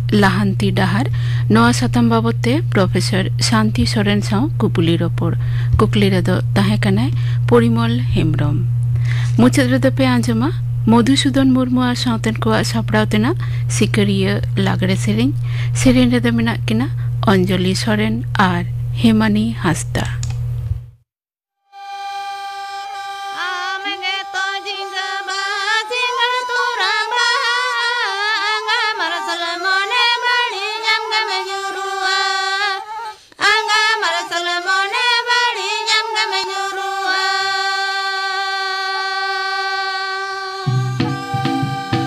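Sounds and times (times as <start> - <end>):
woman singing: 0.0 - 20.1, 23.3 - 42.0
held drone: 21.8 - 28.1, 39.8 - 42.0.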